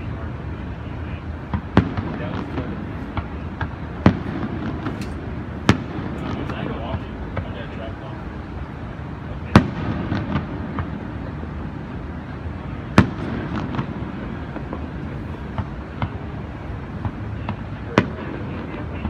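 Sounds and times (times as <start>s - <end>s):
distant firework booms: 1.4s - 7.7s, 9.4s - 11.8s, 12.7s - 19.0s
small firework pops: 1.5s - 7.6s, 12.9s - 16.3s.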